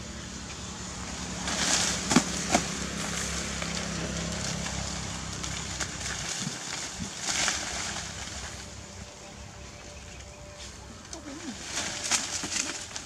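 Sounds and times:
steady low hum: 0:00.0 - 0:13.0
leaves and twigs rustling: 0:00.4 - 0:13.0
twigs snapping: 0:01.4 - 0:08.8, 0:11.0 - 0:13.0.

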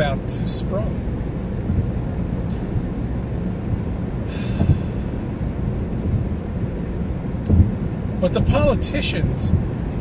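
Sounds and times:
car cabin rumble: 0:00.0 - 0:10.0.

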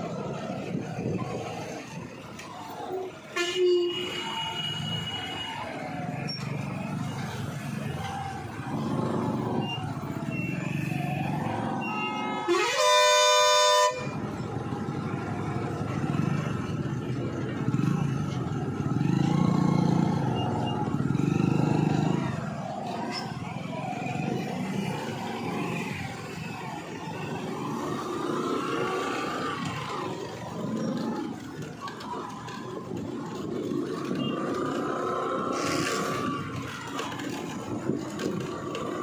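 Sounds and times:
heavy truck engine: 0:00.0 - 0:39.0
motorcycles running: 0:00.0 - 0:39.0
vehicle horn: 0:03.4 - 0:05.4, 0:12.0 - 0:14.2.

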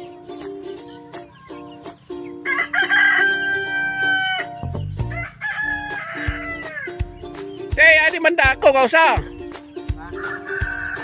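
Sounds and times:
rooster crowing: 0:02.4 - 0:07.1, 0:10.0 - 0:11.0.

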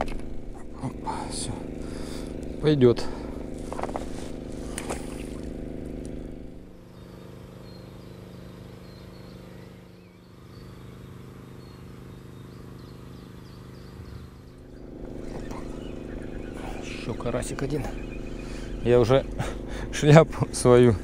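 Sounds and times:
low mechanical hum: 0:00.0 - 0:21.0
faint bird chirps: 0:06.9 - 0:19.5.

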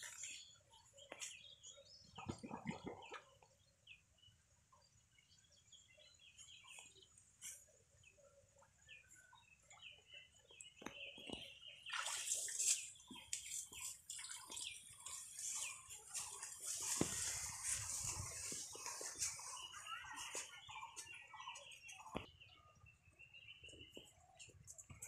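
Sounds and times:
small birds chirping: 0:00.0 - 0:25.0
splashing muddy water: 0:11.9 - 0:20.5.

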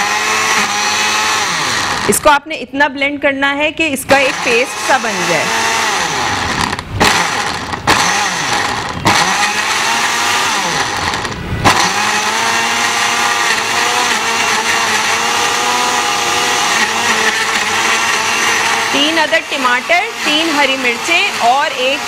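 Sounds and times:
blender motor whining: 0:00.0 - 0:02.2, 0:04.1 - 0:22.0.

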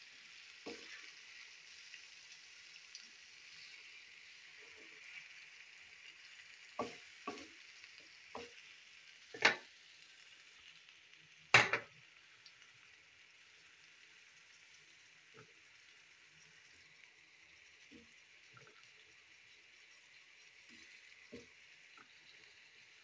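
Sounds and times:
fish sizzling in a pan: 0:00.0 - 0:23.0
spoon scraping and knocking pan: 0:00.7 - 0:01.0, 0:06.8 - 0:07.6, 0:09.4 - 0:09.6, 0:11.6 - 0:11.9.

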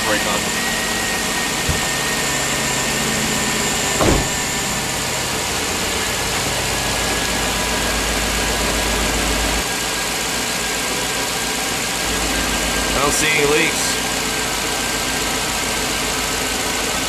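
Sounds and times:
engine idling: 0:00.0 - 0:17.0
brief thump: 0:01.6 - 0:02.1, 0:04.0 - 0:04.6.

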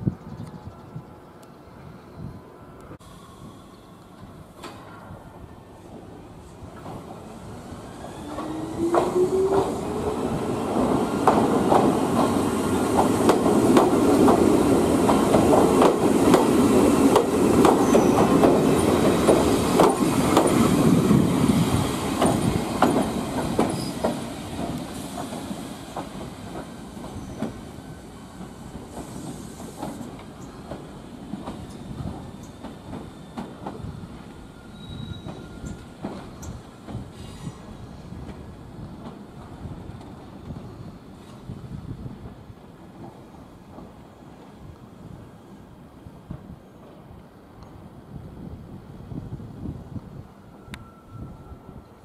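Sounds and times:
train wheels clattering over rails: 0:08.0 - 0:41.5
faint wheel squeals: 0:34.4 - 0:36.6.

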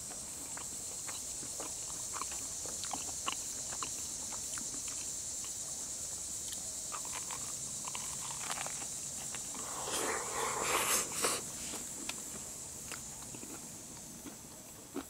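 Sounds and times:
faint irregular ticks and crackles: 0:00.0 - 0:09.6
high-pitched insect chorus drone: 0:00.1 - 0:14.3.

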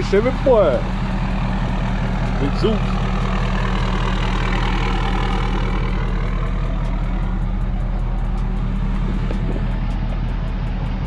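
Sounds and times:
truck engine droning: 0:00.0 - 0:11.0.

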